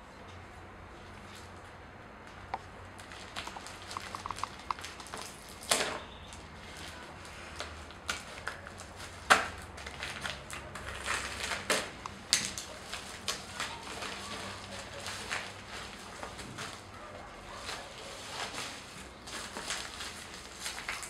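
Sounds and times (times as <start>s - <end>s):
scissors snipping plastic: 3.0s - 6.9s, 7.6s - 16.8s
plastic crinkling: 3.0s - 21.0s.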